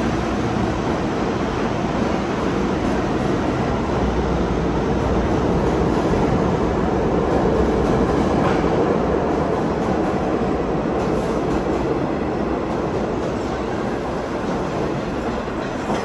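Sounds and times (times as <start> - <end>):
subway train rumbling past: 0.0 - 16.0.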